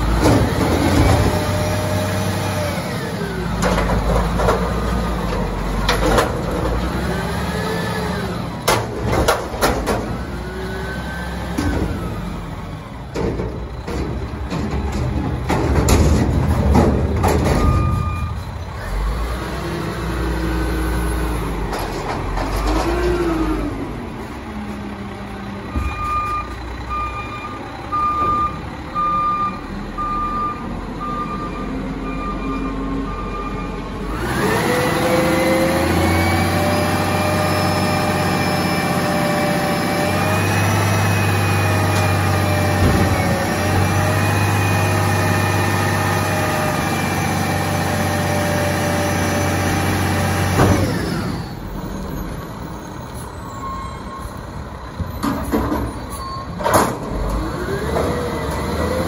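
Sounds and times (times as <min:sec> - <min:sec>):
garbage truck engine running: 0:00.0 - 0:59.0
reversing alarm beeps: 0:17.6 - 0:18.4, 0:25.7 - 0:33.8.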